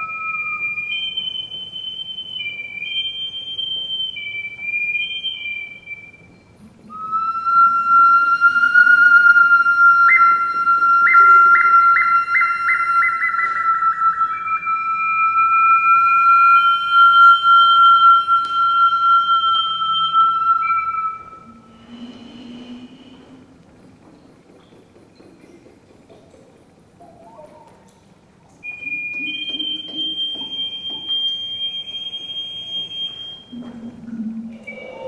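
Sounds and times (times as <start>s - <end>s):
water instrument ringing tones: 28.6s - 35.0s.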